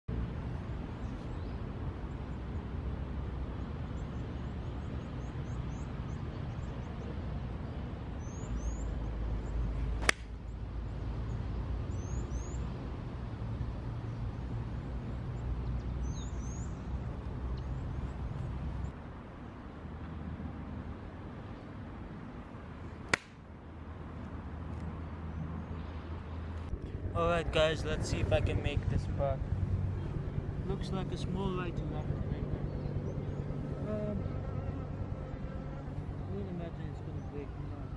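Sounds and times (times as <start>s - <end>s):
birds chirping: 3.5s - 12.8s, 14.0s - 19.0s, 26.8s - 37.9s
golf club striking ball: 10.0s - 10.4s, 23.1s - 23.4s
steady low rumble: 25.9s - 37.9s.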